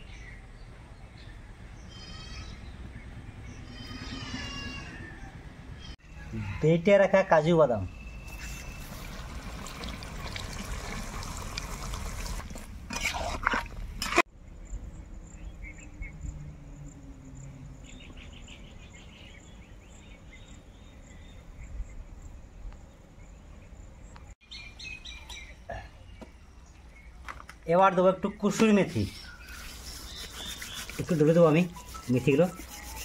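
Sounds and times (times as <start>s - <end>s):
bird chirps: 7.8s - 9.1s, 17.8s - 22.0s, 23.2s - 27.2s, 28.3s - 33.0s
spoon scraping wok: 12.9s - 14.2s
insect drone: 14.4s - 24.2s.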